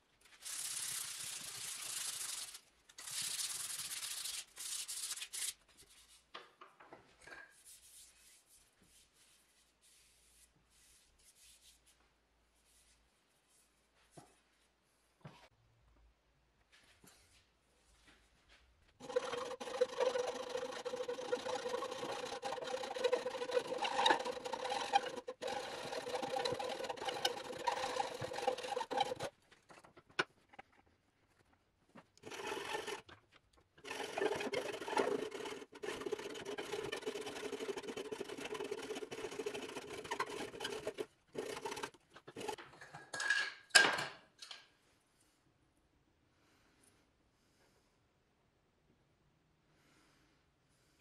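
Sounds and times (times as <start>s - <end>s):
hand saw cutting wood: 19.0s - 29.3s, 32.2s - 33.1s, 33.8s - 42.6s.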